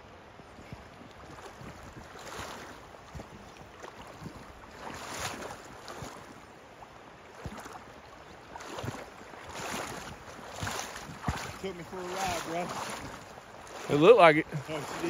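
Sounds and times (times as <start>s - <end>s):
wind buffeting microphone: 0.4s - 6.4s.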